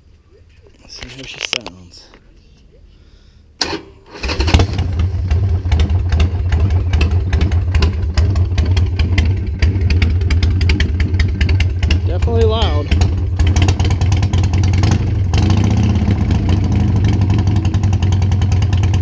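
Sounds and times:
motorcycle engine cranking: 0:03.6 - 0:19.0
motorcycle engine idling: 0:04.5 - 0:19.0.

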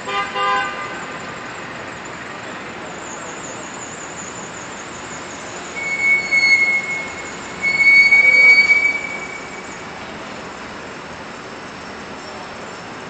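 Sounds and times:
city street noise: 0:00.0 - 0:13.0
high-pitched squeals: 0:03.0 - 0:10.4.

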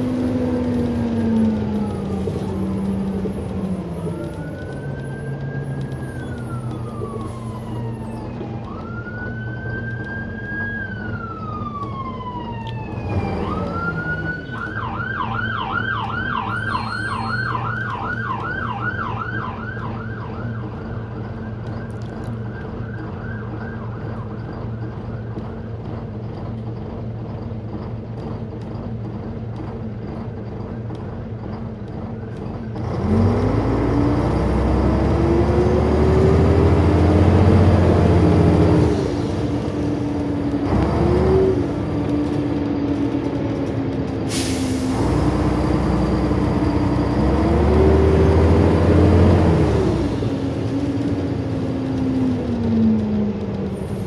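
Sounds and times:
emergency siren wailing and yelping: 0:00.0 - 0:25.6
bus engine running: 0:00.0 - 0:54.0.

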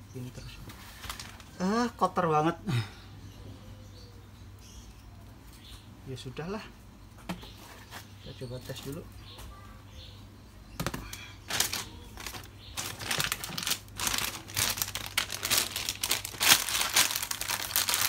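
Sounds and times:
plastic bag crinkling: 0:00.8 - 0:01.6, 0:11.5 - 0:18.0.

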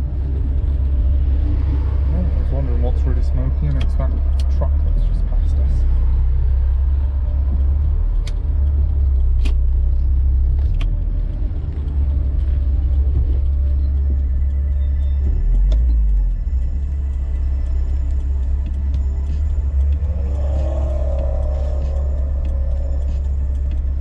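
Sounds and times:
car engine and road rumble: 0:00.0 - 0:24.0
sharp clicks: 0:07.5 - 0:24.0.

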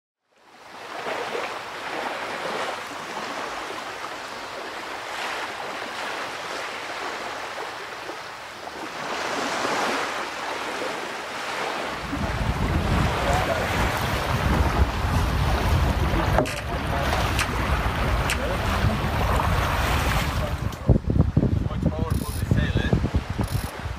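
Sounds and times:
wind: 0:00.2 - 0:23.9
sea water rushing: 0:00.4 - 0:23.9
wind buffeting the microphone: 0:11.6 - 0:23.9.

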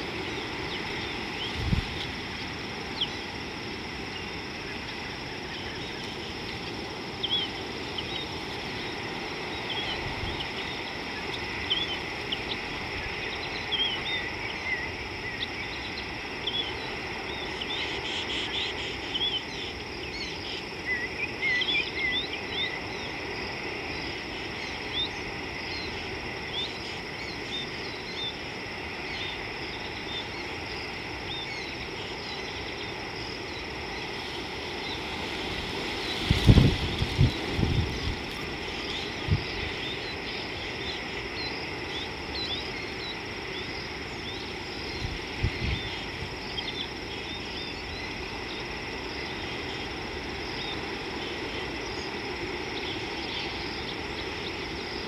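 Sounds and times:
high insect-like drone: 0:00.0 - 0:55.0
steady outdoor hiss: 0:00.0 - 0:55.0.

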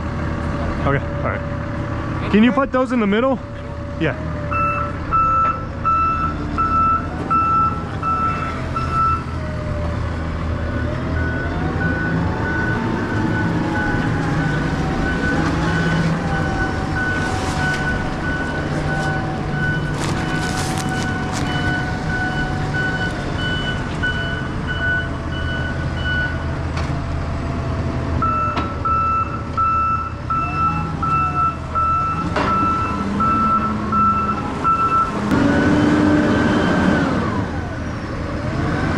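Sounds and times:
forklift engine whine: 0:00.0 - 0:38.9
forklift backup alarm beeping: 0:04.5 - 0:09.6, 0:10.7 - 0:26.5, 0:28.2 - 0:37.6.

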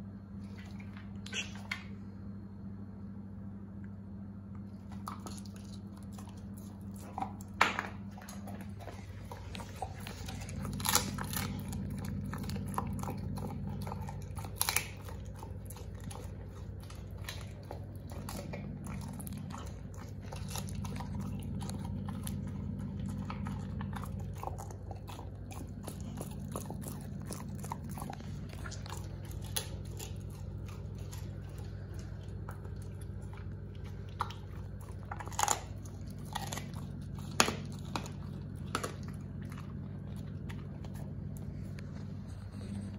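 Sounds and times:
low steady hum: 0:00.0 - 0:42.9
dog crunching and chewing bones: 0:04.6 - 0:42.9.

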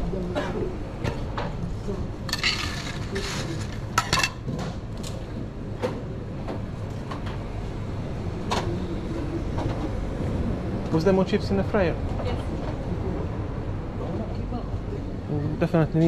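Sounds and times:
kitchen utensils and trays clattering: 0:02.3 - 0:04.7.

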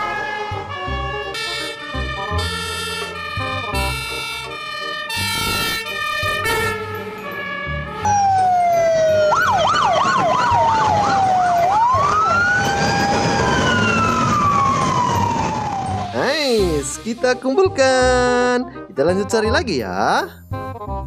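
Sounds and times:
electronic siren yelp: 0:00.0 - 0:16.2
two-tone siren: 0:00.0 - 0:16.2
siren wail: 0:00.0 - 0:16.5.

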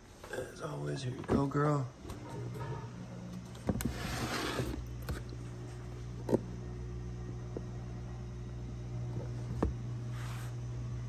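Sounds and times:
small motor humming: 0:02.9 - 0:11.0.

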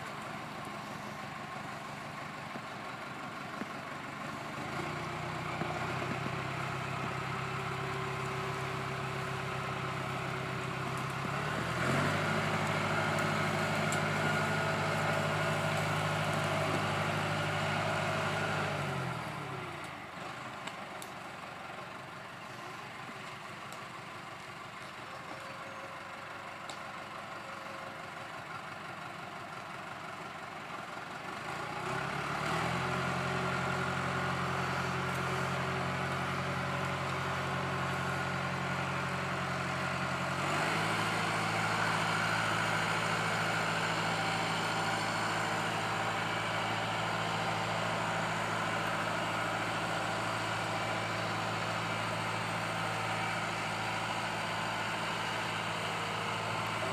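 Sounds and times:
tractor diesel engine under load: 0:00.0 - 0:56.9.

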